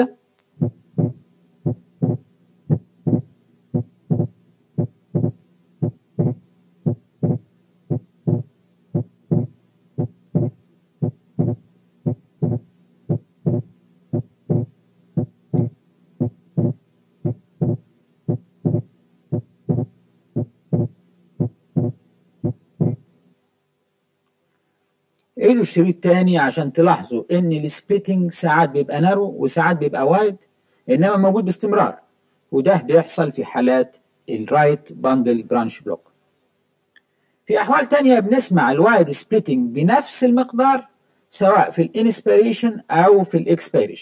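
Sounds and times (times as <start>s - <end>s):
low steady hum: 0.0s - 44.0s
heartbeat: 0.6s - 23.0s.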